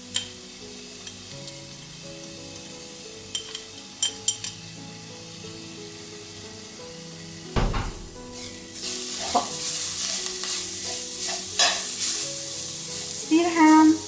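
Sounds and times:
oil sizzling in pan: 0:00.0 - 0:14.0
spoon scraping pan bottom: 0:08.3 - 0:08.6.

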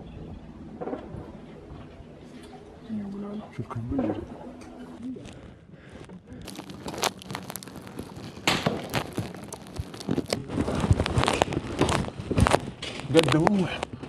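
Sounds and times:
gear rustling and scraping: 0:06.4 - 0:14.0.

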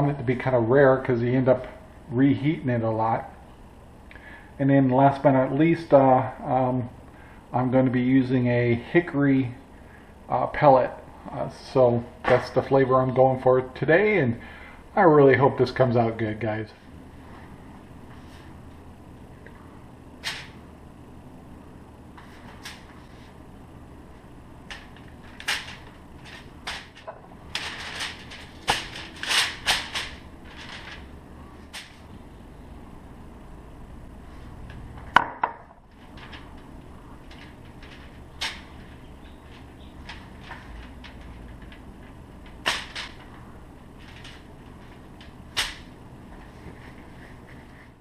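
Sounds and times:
low steady hum: 0:00.0 - 0:48.0
aluminium foil crinkling: 0:24.7 - 0:32.0, 0:35.9 - 0:45.9.

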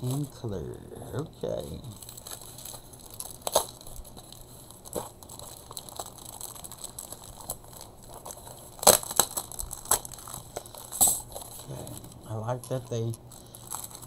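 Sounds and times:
cardboard and plastic rustling: 0:01.5 - 0:14.0.

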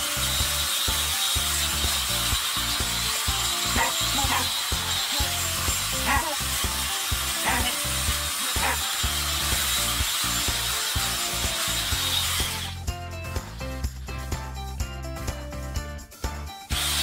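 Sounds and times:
electric clippers buzzing: 0:00.0 - 0:13.6, 0:16.7 - 0:17.0
background music with a beat: 0:09.6 - 0:17.0.

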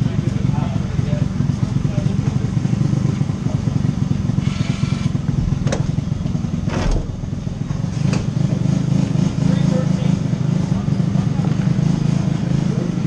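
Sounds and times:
kart engine idling: 0:00.0 - 0:13.0
sharp knocks: 0:05.3 - 0:07.4.

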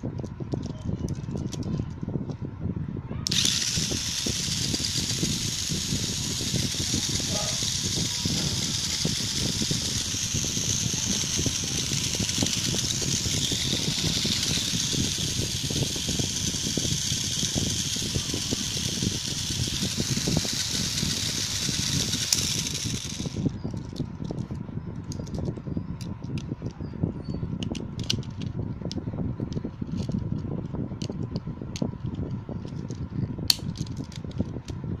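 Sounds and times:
toy car motor whirring: 0:00.6 - 0:02.0, 0:03.2 - 0:24.4, 0:25.0 - 0:26.4, 0:27.6 - 0:30.4, 0:31.0 - 0:34.7
sharp plastic clicks: 0:33.5 - 0:34.4.

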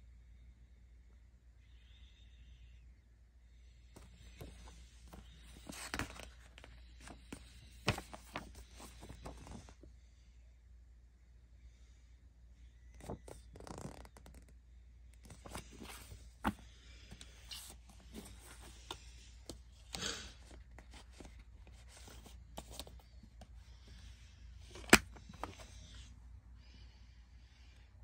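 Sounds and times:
paper booklet rustling: 0:04.0 - 0:09.8, 0:12.9 - 0:14.4, 0:15.2 - 0:26.1
plastic case snapping shut: 0:24.7 - 0:25.6.

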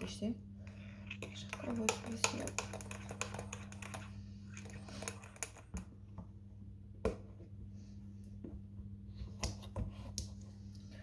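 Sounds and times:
steady low hum: 0:00.0 - 0:11.0
mug clicking and knocking: 0:01.5 - 0:04.1.

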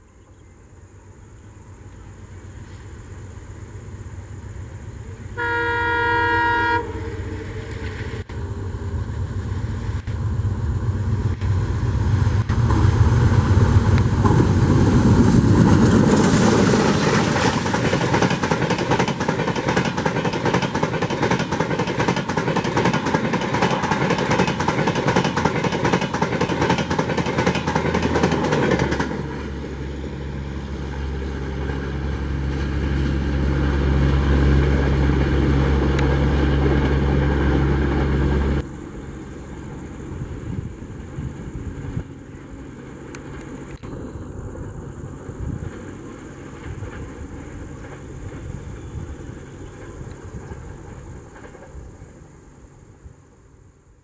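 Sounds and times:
locomotive engine rumble: 0:00.0 - 0:52.6
multi-tone locomotive horn: 0:05.4 - 0:08.0
wheels clicking over rails: 0:10.9 - 0:38.7.

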